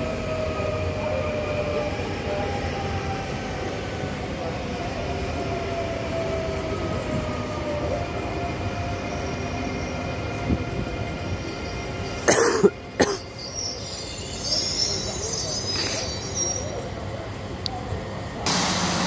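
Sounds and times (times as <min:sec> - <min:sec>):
electric trains humming: 0:00.0 - 0:19.0
faint high squeal: 0:13.2 - 0:17.0.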